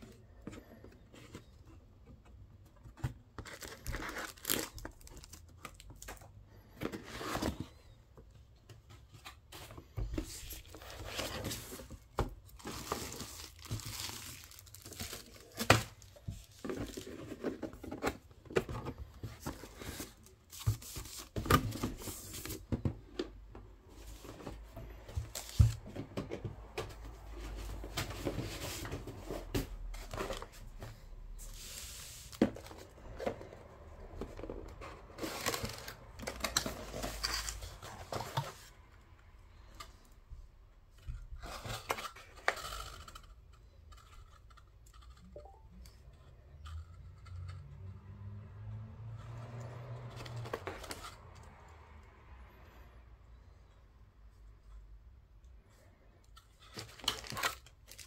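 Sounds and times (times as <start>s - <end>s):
wrapping sheet crinkling: 12.6s - 15.6s.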